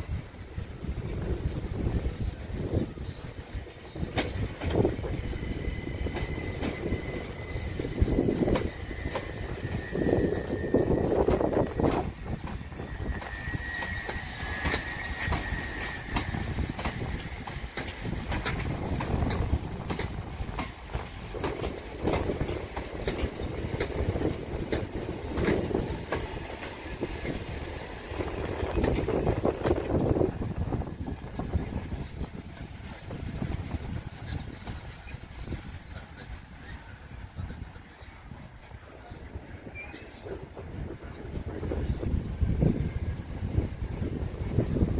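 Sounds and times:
train wheels clicking over rail joints: 3.9s - 37.0s
high wheel squeal: 5.2s - 17.2s, 27.7s - 29.4s.

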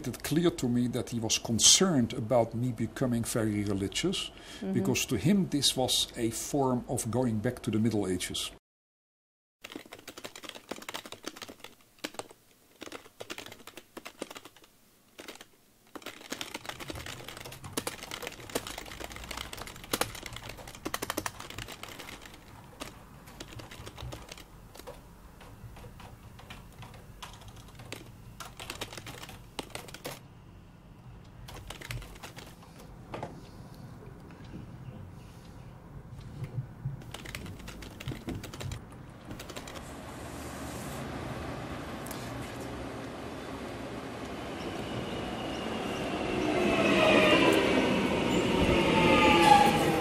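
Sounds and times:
keyboard typing clicks: 9.6s - 30.2s, 31.5s - 32.6s, 37.0s - 39.8s.

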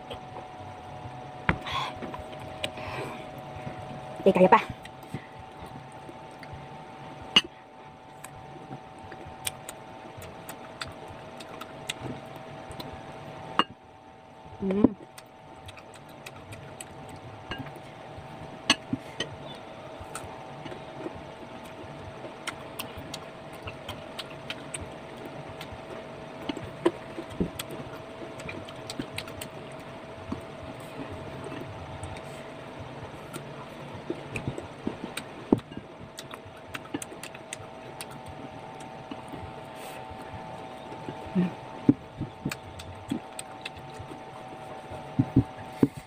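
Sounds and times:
faint steady hum: 0.0s - 46.0s
crunchy chewing: 15.0s - 17.8s, 18.8s - 46.0s.

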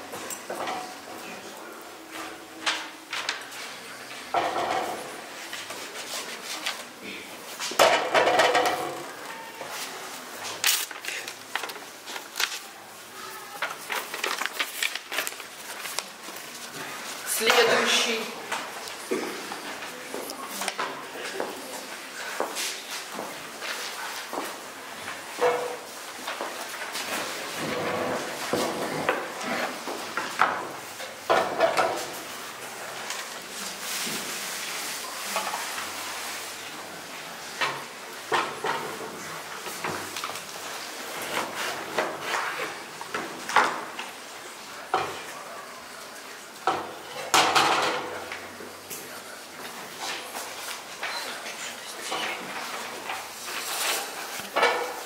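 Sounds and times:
steady room noise: 0.0s - 55.0s
metal pans clattering on a scale: 7.8s - 9.1s
paper rustling: 9.7s - 17.2s, 52.2s - 55.0s.

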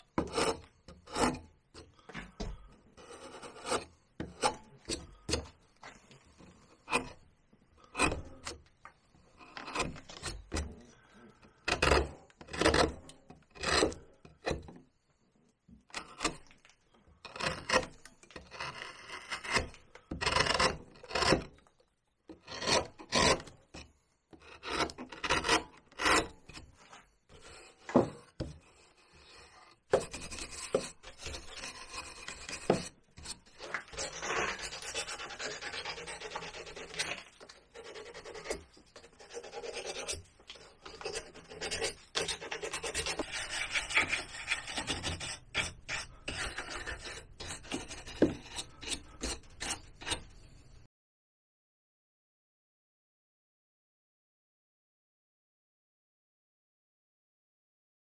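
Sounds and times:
rubbing over carved bark: 3.0s - 7.2s, 24.4s - 50.4s
knife cutting bark: 8.0s - 8.6s.

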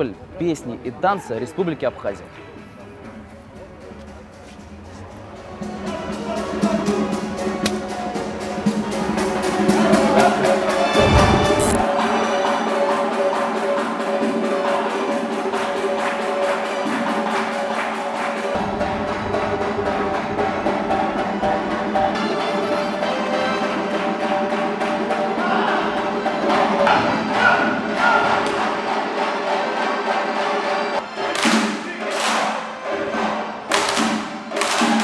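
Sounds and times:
folk dance music: 6.9s - 35.0s
brief low rumble: 10.9s - 11.9s.

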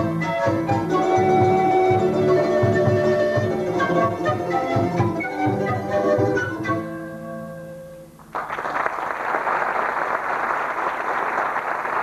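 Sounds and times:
folk band chord on guitar and wind: 0.0s - 8.1s
audience applause: 8.3s - 12.0s.

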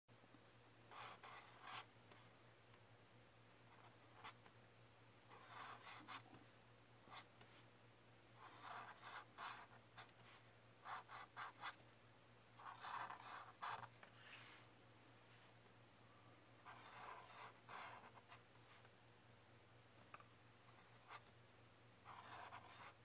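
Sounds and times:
marker scratching on paper: 0.9s - 1.9s, 5.3s - 6.2s, 8.4s - 11.8s, 12.6s - 14.4s, 16.6s - 18.4s, 22.1s - 23.0s.

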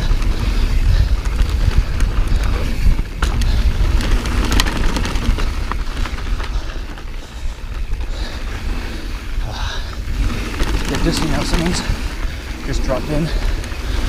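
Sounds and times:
bike clicks and knocks: 0.0s - 8.2s
wind rumble on microphone: 0.0s - 14.0s
tyres rolling over dirt: 1.2s - 14.0s.

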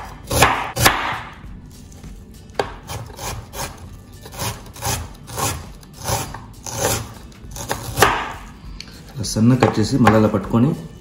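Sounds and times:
knife slicing onion: 0.0s - 1.3s, 2.5s - 8.5s.

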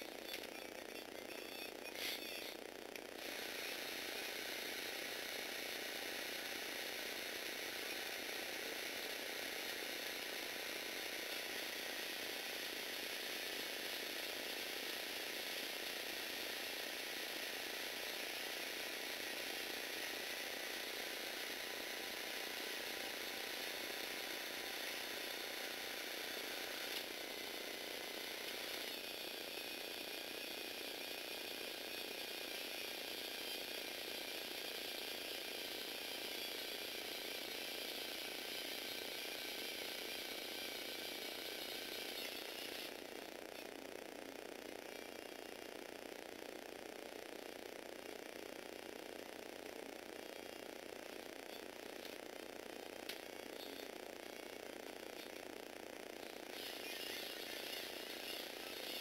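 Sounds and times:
electric motors whirring with gears: 0.0s - 59.0s
click: 0.3s - 0.6s, 53.0s - 53.7s.

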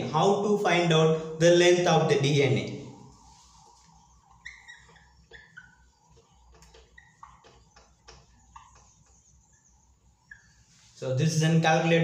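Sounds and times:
whiteboard marker squeaking: 3.8s - 10.7s
marker tapping: 4.4s - 9.2s.

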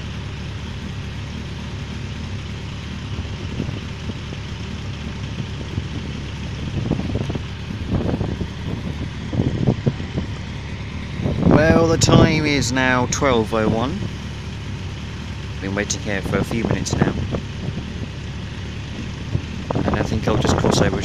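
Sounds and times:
road traffic hum: 0.0s - 21.0s
wind buffeting microphone: 5.4s - 12.6s, 16.3s - 18.2s, 18.9s - 21.0s.

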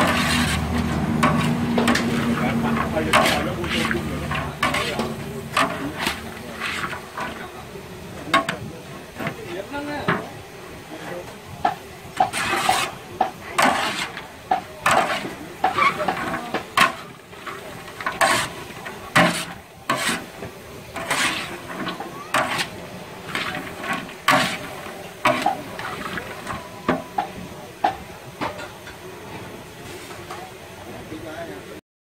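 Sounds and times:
utensil scraping cookware: 0.0s - 7.6s, 11.7s - 29.0s.

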